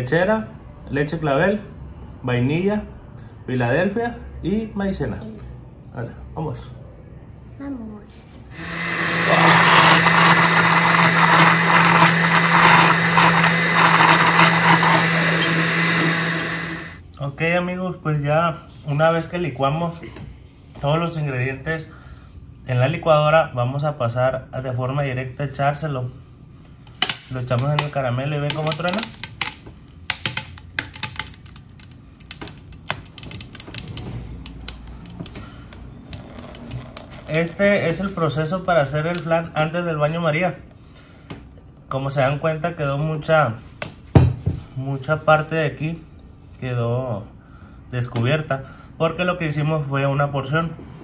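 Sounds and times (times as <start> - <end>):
blender running: 8.5 - 17.0, 28.5 - 29.6, 36.1 - 37.6
hardened caramel crackling: 8.6 - 17.0, 26.9 - 39.4
liquid pouring: 30.2 - 37.5.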